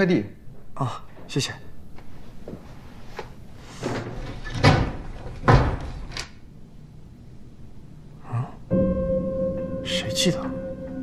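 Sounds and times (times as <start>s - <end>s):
wooden door shutting: 3.8s - 6.3s.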